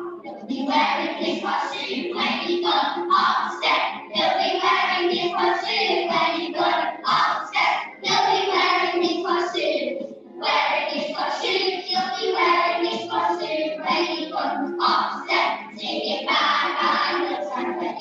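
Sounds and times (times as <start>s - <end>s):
children singing together: 0.0s - 18.0s
musical accompaniment: 0.0s - 18.0s.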